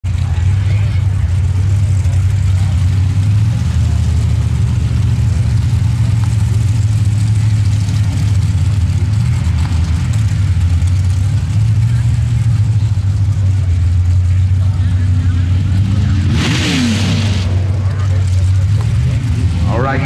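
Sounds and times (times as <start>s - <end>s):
engine idling low rumble: 0.0s - 20.0s.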